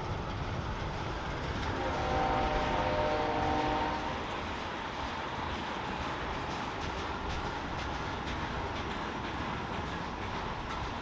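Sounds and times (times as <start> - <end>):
train rumbling: 0.0 - 11.0
locomotive air horn chord: 1.8 - 4.2.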